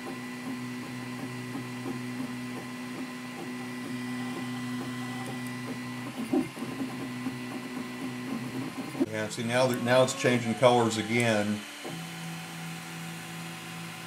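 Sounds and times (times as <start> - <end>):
steady hum: 0.5 - 13.8
stepper motors singing: 4.1 - 11.8.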